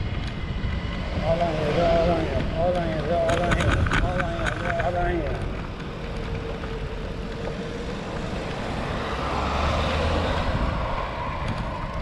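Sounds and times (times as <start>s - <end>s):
road and wind noise: 0.0s - 12.0s
vehicle passing close by: 5.6s - 12.0s.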